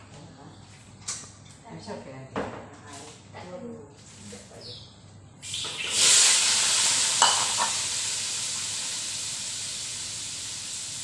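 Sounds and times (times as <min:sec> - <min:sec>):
food sizzling in hot oil: 0:05.4 - 0:11.0.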